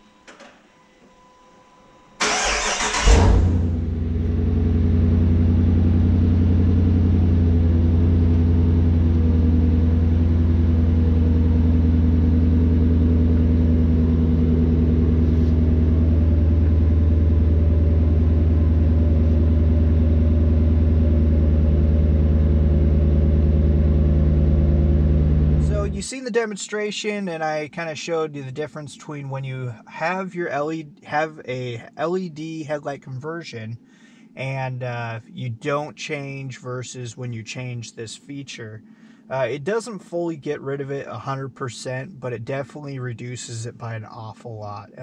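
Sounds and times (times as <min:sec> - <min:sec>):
car engine starting and idling: 0:02.2 - 0:26.1.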